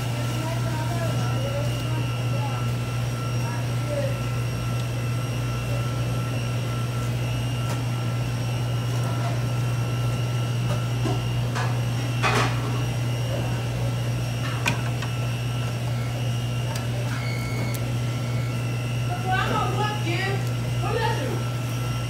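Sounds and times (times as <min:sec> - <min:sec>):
kitchen machinery humming: 0:00.0 - 0:22.0.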